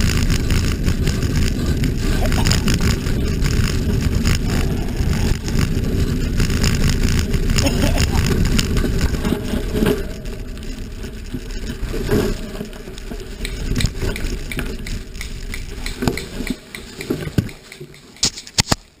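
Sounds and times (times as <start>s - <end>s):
camera rumbling over dirt: 0.0s - 19.0s
sharp clicks: 11.7s - 19.0s.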